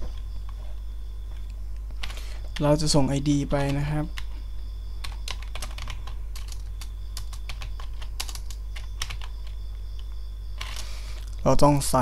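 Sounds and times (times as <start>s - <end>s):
keyboard typing: 3.5s - 4.4s, 5.0s - 11.4s.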